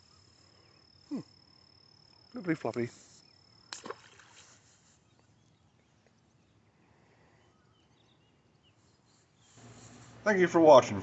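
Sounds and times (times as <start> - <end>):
faint bird chirping: 0.0 - 10.2
fish splashing into water: 3.7 - 4.6.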